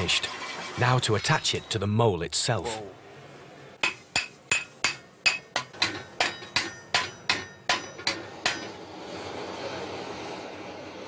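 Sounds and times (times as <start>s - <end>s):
hammer striking iron: 3.8s - 8.8s.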